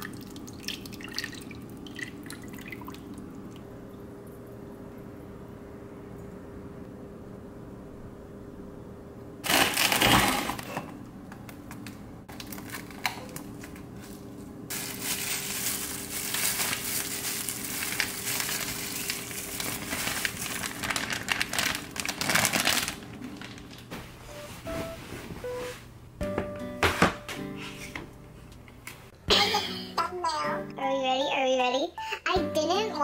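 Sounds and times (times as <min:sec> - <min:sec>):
plastic bag crinkling: 0:09.4 - 0:10.9, 0:12.3 - 0:23.9.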